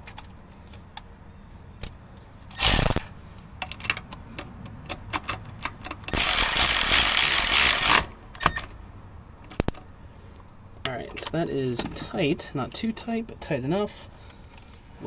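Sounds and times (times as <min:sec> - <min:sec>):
electric ratchet motor running: 0:02.5 - 0:03.1, 0:06.1 - 0:08.1
ratchet clicks: 0:02.5 - 0:04.0, 0:04.9 - 0:08.1.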